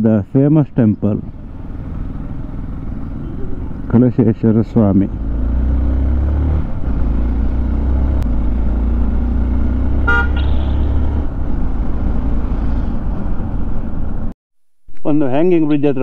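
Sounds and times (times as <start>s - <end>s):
motorcycle engine: 0.8s - 14.3s
horn toot: 10.0s - 11.1s.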